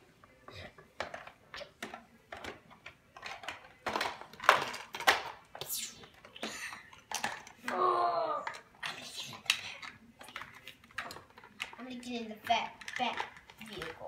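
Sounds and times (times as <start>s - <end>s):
plastic toys clicking and clacking: 0.5s - 14.0s
child's voice: 7.6s - 9.4s.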